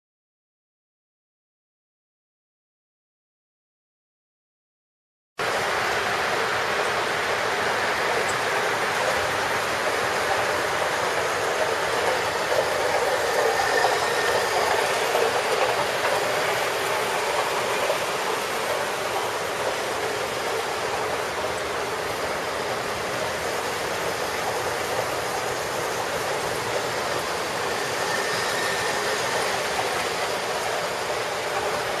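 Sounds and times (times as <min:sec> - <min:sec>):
model trains running on track: 0:05.4 - 0:32.0.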